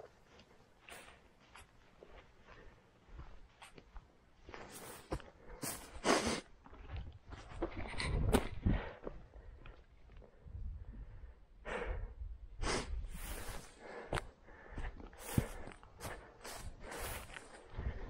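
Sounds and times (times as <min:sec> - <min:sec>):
footsteps through wet grass: 0:00.0 - 0:07.6, 0:14.6 - 0:18.0.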